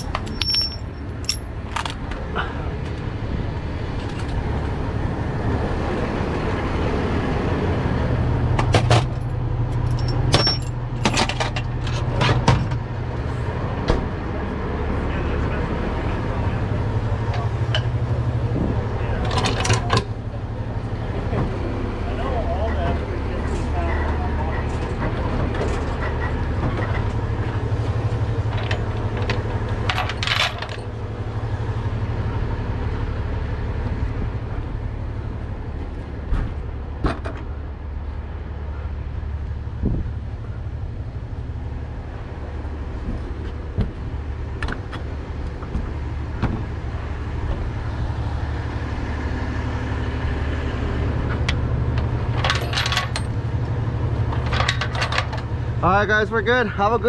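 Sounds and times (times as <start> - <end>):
chains jingling and rattling: 0.0 - 1.5, 9.9 - 10.8
truck engine idling: 0.0 - 57.0.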